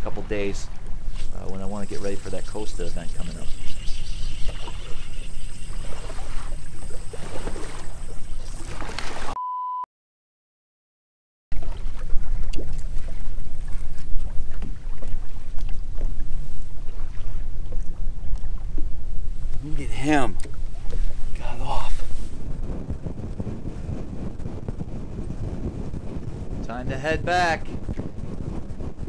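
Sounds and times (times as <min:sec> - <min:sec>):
wind rumbling on microphone: 0:00.0 - 0:09.3, 0:11.5 - 0:29.0
water splashing against boat hull: 0:00.0 - 0:09.4, 0:11.5 - 0:23.0.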